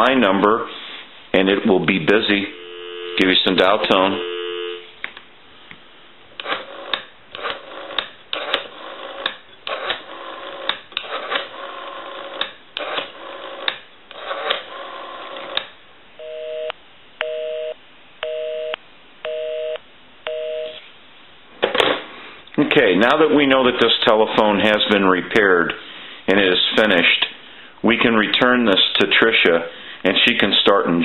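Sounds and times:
two-tone busy signal beeps: 0:02.5 - 0:04.9, 0:16.2 - 0:20.8.

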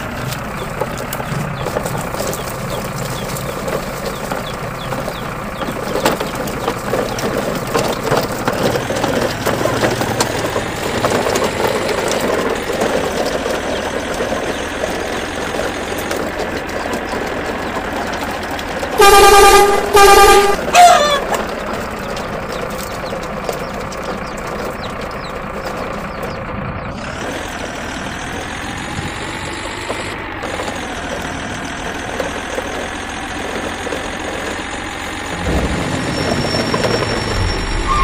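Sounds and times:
engine rumble and rattle: 0:00.0 - 0:38.0
truck horn honk: 0:18.9 - 0:21.3, 0:35.3 - 0:38.0.

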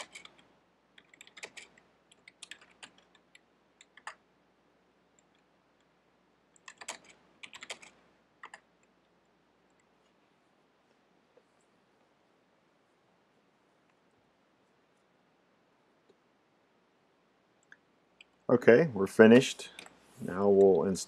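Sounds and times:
keyboard typing clicks: 0:00.0 - 0:04.2, 0:06.6 - 0:08.7.

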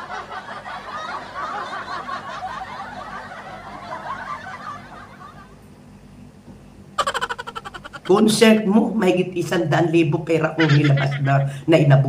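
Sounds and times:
people laughing: 0:00.0 - 0:05.6, 0:07.0 - 0:08.2, 0:10.5 - 0:11.6
soft snickering: 0:07.0 - 0:08.1.

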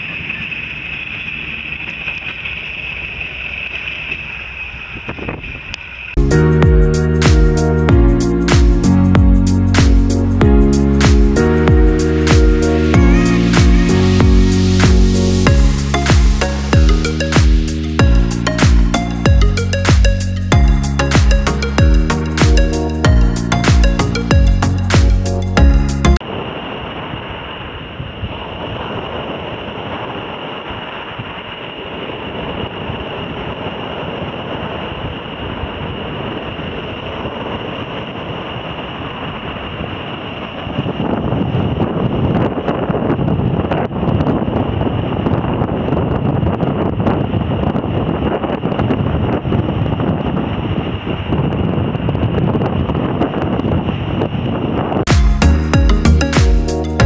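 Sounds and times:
wind buffeting microphone: 0:04.0 - 0:05.9, 0:25.6 - 0:55.1.

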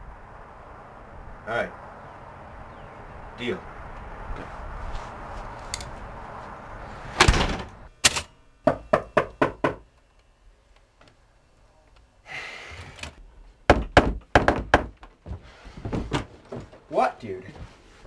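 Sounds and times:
knock on wooden door: 0:13.7 - 0:15.0.

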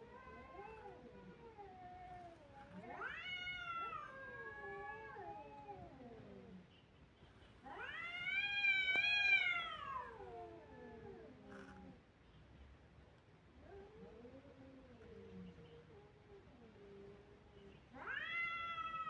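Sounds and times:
cats caterwauling: 0:00.0 - 0:06.6, 0:07.7 - 0:12.0, 0:17.9 - 0:19.0.

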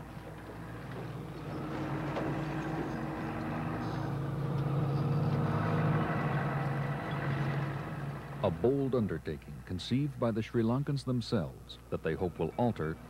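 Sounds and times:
heavy diesel engine running: 0:00.0 - 0:09.2.

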